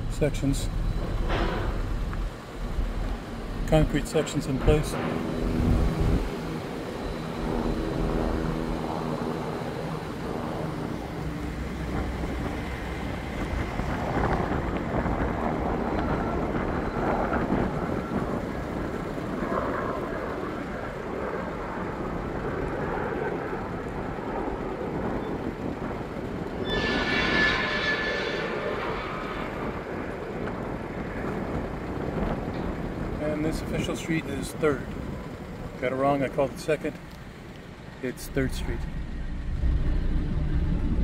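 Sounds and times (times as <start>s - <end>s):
low rumbling noise: 0.0s - 41.0s
vehicle engine humming: 0.0s - 41.0s.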